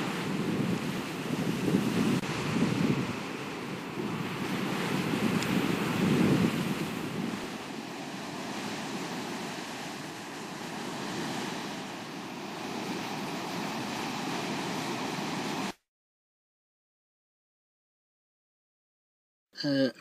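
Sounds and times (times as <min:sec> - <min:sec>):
ocean waves rushing: 0:00.0 - 0:15.8
wind: 0:00.0 - 0:15.8.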